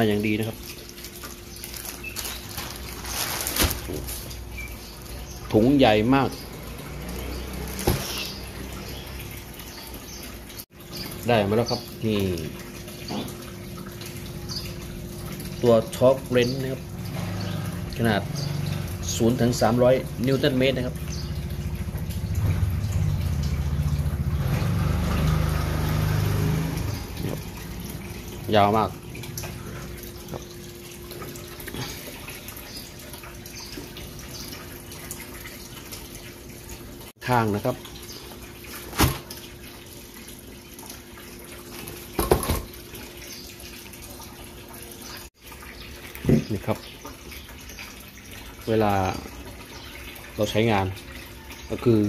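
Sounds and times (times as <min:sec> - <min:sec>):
low machine hum with flutter: 0:06.4 - 0:37.1.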